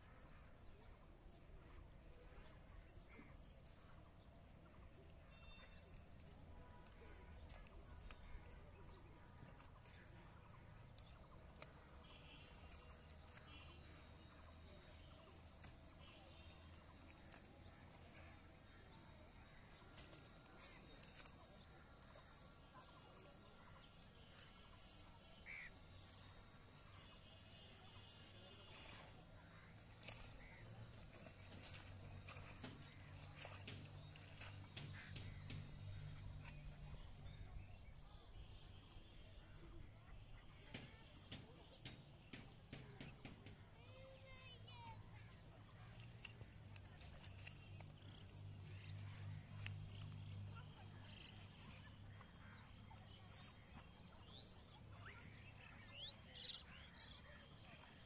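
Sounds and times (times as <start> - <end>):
cow grazing clicks: 2.0 - 24.8, 28.7 - 36.8, 45.1 - 58.0.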